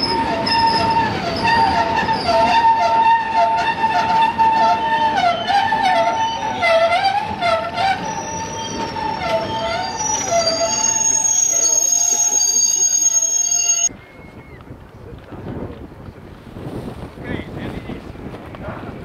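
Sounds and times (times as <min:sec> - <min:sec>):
wavering lower squeal: 0:00.0 - 0:13.9
train wheels squealing on rails: 0:00.0 - 0:14.6.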